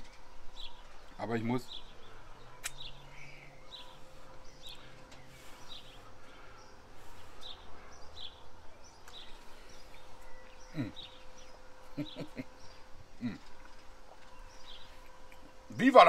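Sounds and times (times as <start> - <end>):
small bird chirping: 0.0 - 15.6
faint low drone: 0.0 - 16.0.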